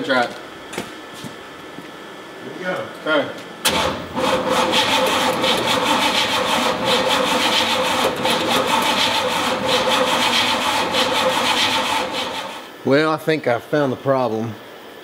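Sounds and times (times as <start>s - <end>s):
starter motor cranking engine: 3.6s - 12.7s.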